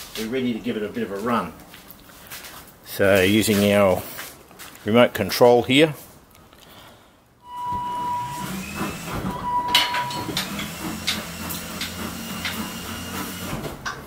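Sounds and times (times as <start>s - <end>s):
electric motors whirring: 7.6s - 13.7s.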